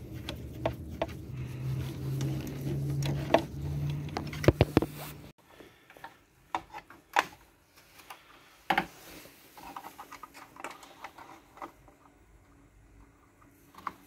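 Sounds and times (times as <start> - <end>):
cable rattling and rubbing: 0.0 - 5.3.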